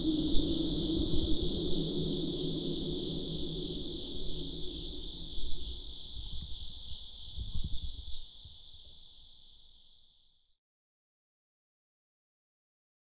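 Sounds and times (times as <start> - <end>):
high-pitched drone: 0.0 - 6.5.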